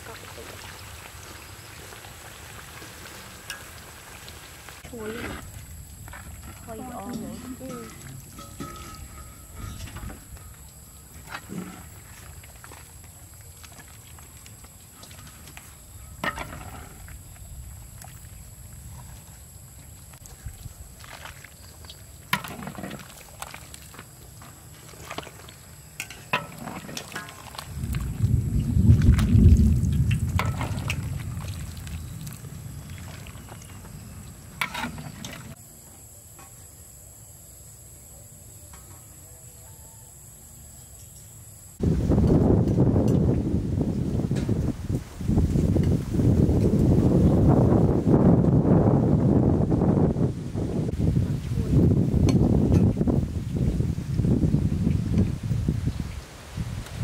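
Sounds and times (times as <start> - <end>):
pot simmering over fire: 0.0 - 39.1
quiet outdoor background: 0.0 - 57.0
metal ladle scraping wok: 7.1 - 10.3
sharp metal clank: 7.2 - 10.2.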